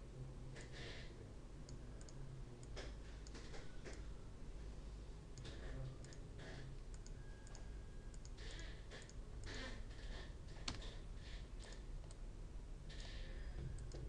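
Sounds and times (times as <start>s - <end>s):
low steady hum: 0.0s - 14.0s
computer mouse clicks: 1.7s - 4.0s, 5.4s - 11.0s, 11.6s - 12.2s, 12.9s - 14.0s.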